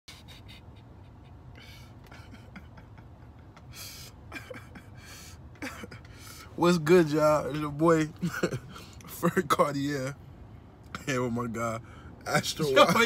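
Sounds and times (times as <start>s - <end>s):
man laughing quietly: 0.1s - 6.4s
low steady rumble: 0.1s - 13.0s.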